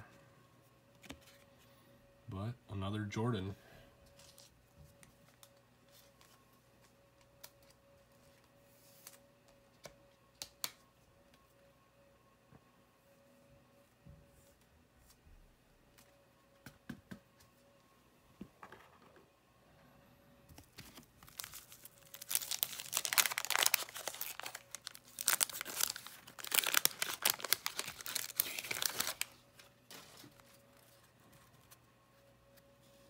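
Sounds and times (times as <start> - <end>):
wrapper tearing and crinkling: 20.8 - 30.5.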